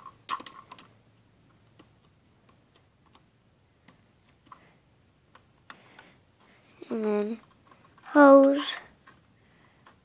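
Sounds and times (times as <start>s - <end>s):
plastic toy pieces clicking: 0.3s - 0.9s.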